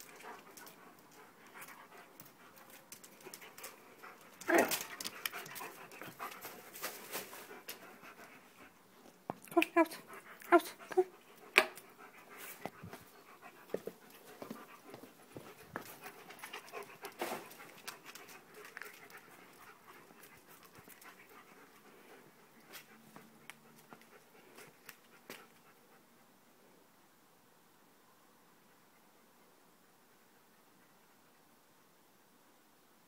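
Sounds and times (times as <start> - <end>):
dog panting: 0.0 - 9.2, 9.8 - 26.1.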